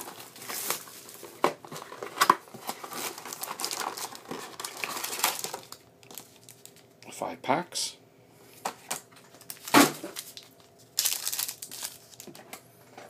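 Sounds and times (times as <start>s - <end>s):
plastic shrink wrap tearing: 1.8s - 6.8s, 9.4s - 12.4s.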